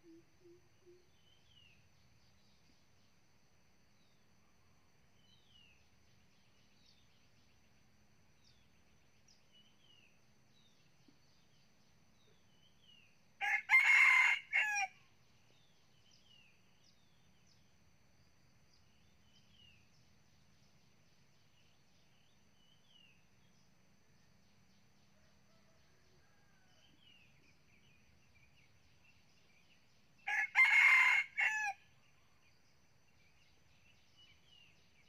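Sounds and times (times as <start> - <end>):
faint bird chirps: 0.0 - 3.2
thin steady insect tone: 0.0 - 35.0
rooster crowing: 13.4 - 15.0, 30.3 - 31.8.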